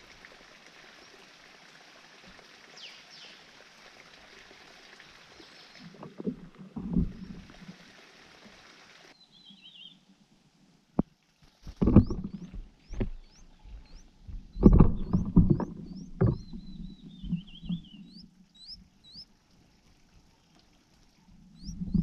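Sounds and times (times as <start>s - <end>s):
thumps and rustling of branches: 11.0s - 17.8s
nestling begging peeps: 11.9s - 19.2s.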